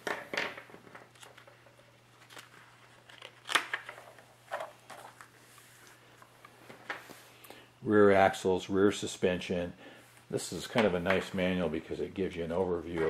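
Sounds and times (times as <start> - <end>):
paper pages rustling: 1.1 - 7.2.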